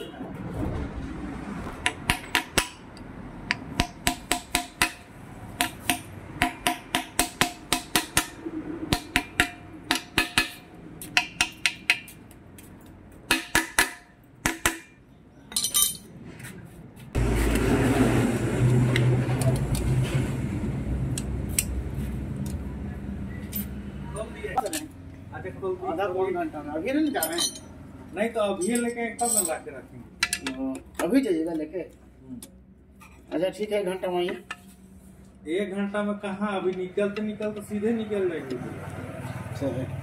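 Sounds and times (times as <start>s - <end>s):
metal tools clinking on engine casing: 15.4s - 16.2s, 27.0s - 27.8s, 28.5s - 31.1s.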